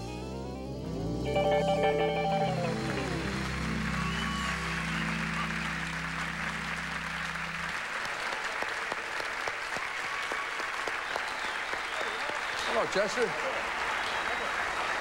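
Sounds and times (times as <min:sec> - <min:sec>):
band holding chord: 0:00.4 - 0:08.1
studio audience applauding: 0:01.9 - 0:15.0.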